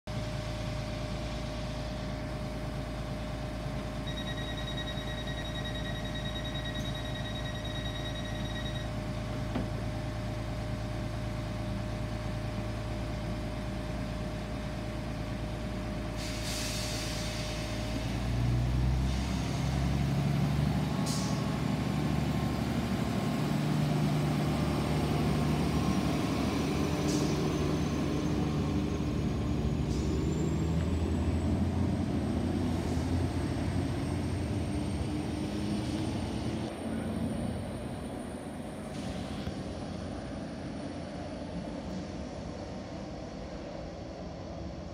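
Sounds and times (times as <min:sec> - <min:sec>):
diesel train engines idling: 0:00.1 - 0:44.9
train whine pulling away: 0:00.1 - 0:44.9
beeping door warning tone: 0:04.0 - 0:09.0
hiss of air: 0:16.2 - 0:18.3, 0:38.8 - 0:39.8.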